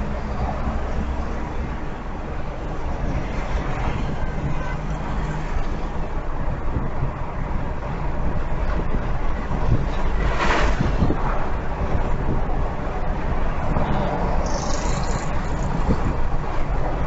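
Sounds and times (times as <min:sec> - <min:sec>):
tyre and road rumble: 0:08.3 - 0:17.0.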